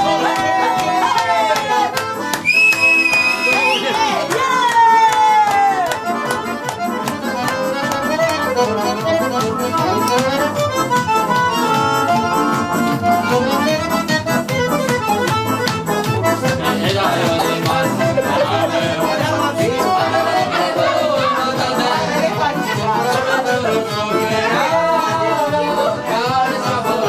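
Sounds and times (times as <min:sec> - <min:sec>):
piano accordion playing folk tune: 0:00.0 - 0:04.4, 0:05.6 - 0:27.0
electronic keyboard: 0:05.5 - 0:27.0.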